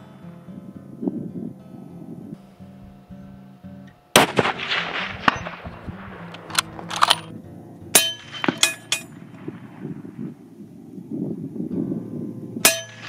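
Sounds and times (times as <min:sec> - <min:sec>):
rifle shot: 0:04.2 - 0:07.3, 0:08.0 - 0:09.9
metallic clinks and clangs: 0:06.4 - 0:07.3, 0:08.0 - 0:09.2.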